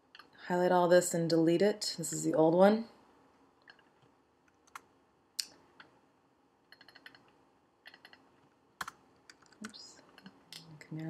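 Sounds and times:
keyboard and mouse clicks: 0.0s - 0.4s, 3.6s - 6.0s, 6.7s - 10.7s.

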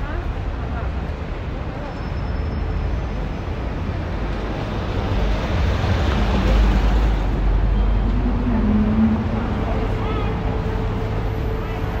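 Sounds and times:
heavy vehicle passing: 3.8s - 12.0s.

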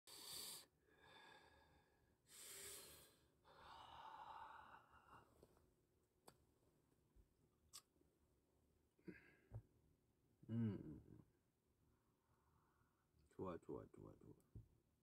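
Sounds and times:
man exhaling and sighing: 9.0s - 9.6s.

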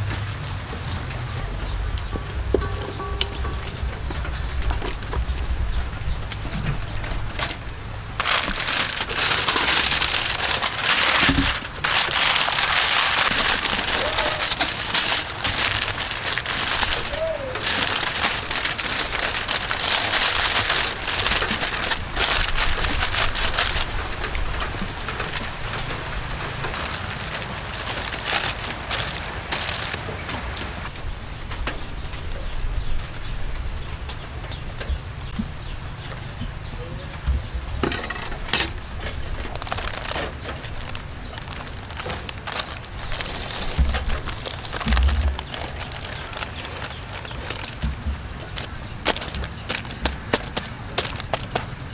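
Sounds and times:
aluminium foil crinkling: 6.2s - 30.9s, 38.2s - 51.9s.

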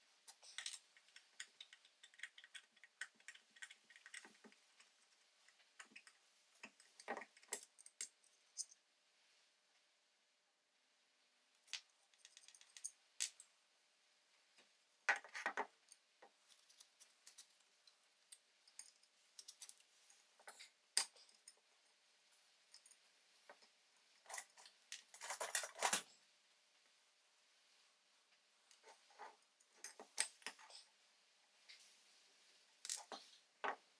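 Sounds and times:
metal tools clicking and clinking: 0.4s - 4.4s, 24.2s - 26.1s.

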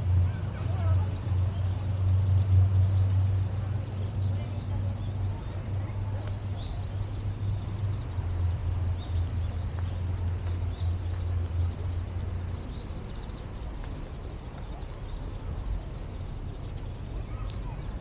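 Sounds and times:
low rumble: 0.0s - 18.0s
small birds chirping: 0.0s - 18.0s
footsteps on gravel path: 8.0s - 15.4s.

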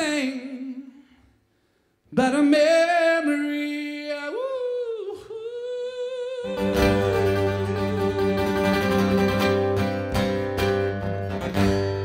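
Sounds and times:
man singing with vibrato: 0.0s - 1.4s, 2.0s - 12.0s
strummed guitar with bass: 6.4s - 12.0s.

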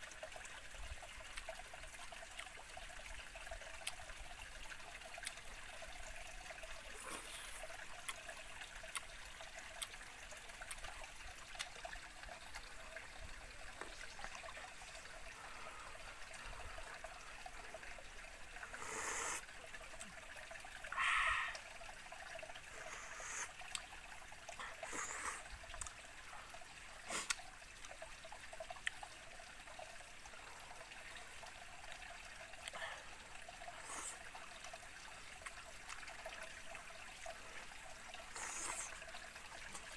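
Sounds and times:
small stream trickling: 0.0s - 39.9s
eating sounds: 1.3s - 2.6s, 3.6s - 4.2s, 5.0s - 5.8s, 6.4s - 13.0s, 20.9s - 21.6s, 22.6s - 27.5s, 31.8s - 34.7s, 35.4s - 39.9s.

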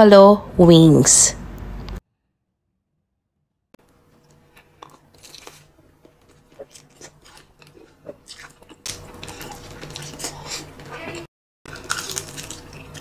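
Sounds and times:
crunching and chewing: 4.1s - 13.0s.

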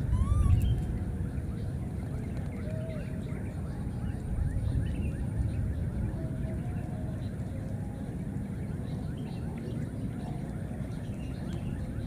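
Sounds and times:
baby monkeys squeaky calls: 0.0s - 0.8s
steady low rumble: 0.0s - 2.6s.

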